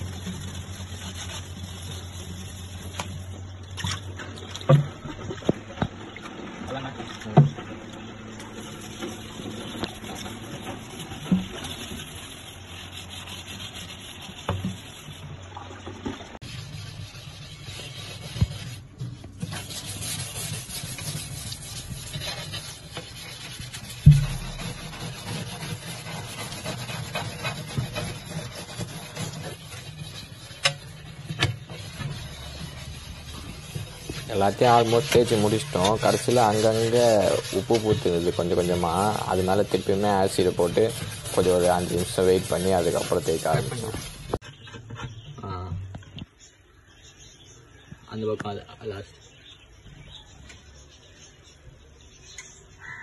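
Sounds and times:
scrubbing glass: 0.0 - 5.8, 7.0 - 45.4.

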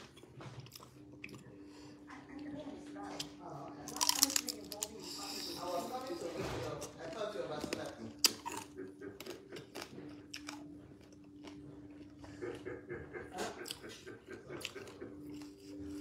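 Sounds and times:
faint steady hum: 0.0 - 6.2
person chewing and biting: 3.9 - 6.2, 7.5 - 12.2, 14.6 - 16.0.

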